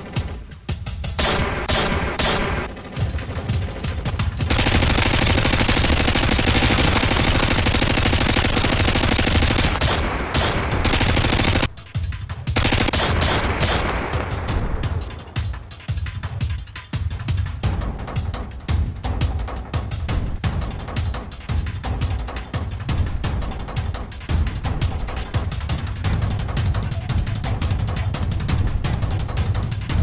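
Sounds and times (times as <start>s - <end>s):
music: 0.0s - 30.0s
rapid gunfire: 1.1s - 15.4s.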